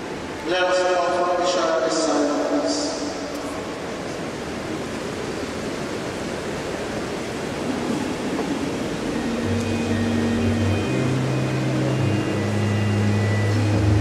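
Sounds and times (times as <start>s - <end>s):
murmur of congregation: 0.4s - 4.8s
sustained held chord: 9.0s - 14.0s.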